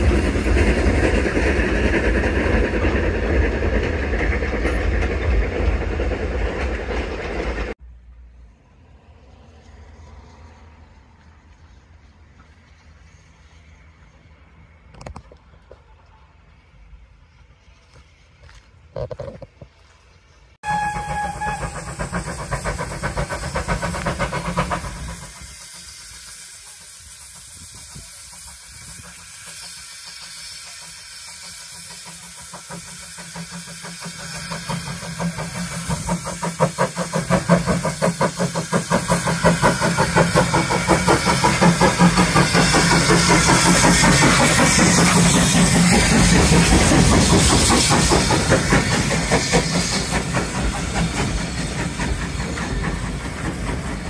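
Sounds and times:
steam locomotive chugging: 0:00.0 - 0:07.8, 0:19.6 - 0:54.0
train coaches rolling by: 0:00.0 - 0:54.0.

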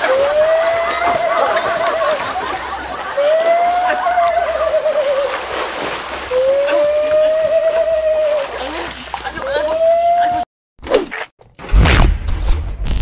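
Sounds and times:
long wavering wail: 0:00.0 - 0:02.2, 0:03.1 - 0:05.4, 0:06.3 - 0:08.8
water splashing and sloshing: 0:00.0 - 0:10.4.

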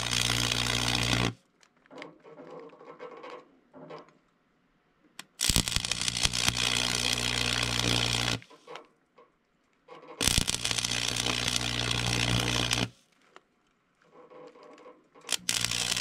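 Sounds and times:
welding arc crackling: 0:00.0 - 0:01.4, 0:05.2 - 0:08.5, 0:10.2 - 0:12.9, 0:15.3 - 0:16.0.

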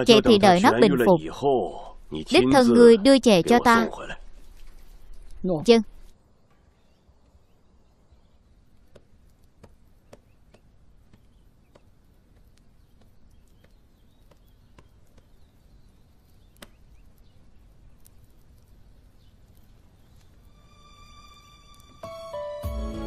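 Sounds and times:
low hiss: 0:00.0 - 0:23.0
small clicks and ticks: 0:08.7 - 0:20.6, 0:21.4 - 0:22.0.

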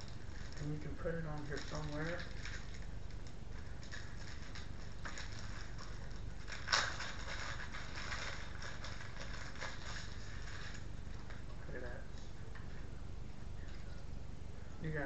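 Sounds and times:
plastic packaging crinkling: 0:00.0 - 0:11.6
steady low hum: 0:00.0 - 0:15.0.

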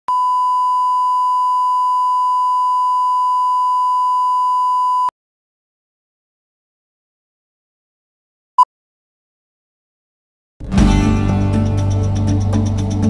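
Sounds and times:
steady test tone beep: 0:00.1 - 0:05.1.

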